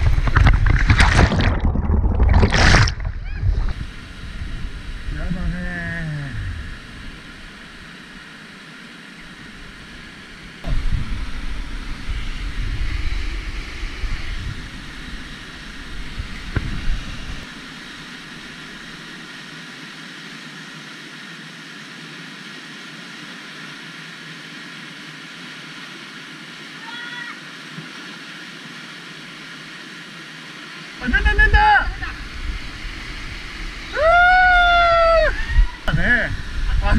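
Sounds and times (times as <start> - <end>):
low rumbling on microphone: 0.0 - 7.7, 10.6 - 17.5.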